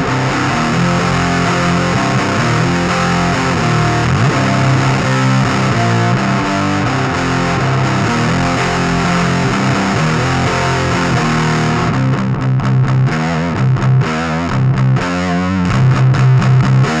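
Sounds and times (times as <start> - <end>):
distorted electric guitar riff: 0.0 - 17.0.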